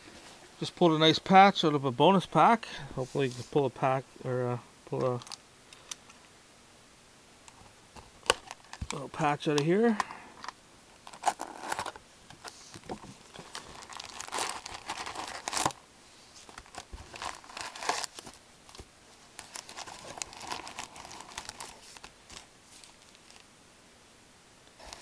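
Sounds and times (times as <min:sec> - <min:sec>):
foil packs crinkling: 0:11.0 - 0:15.8, 0:16.4 - 0:23.5.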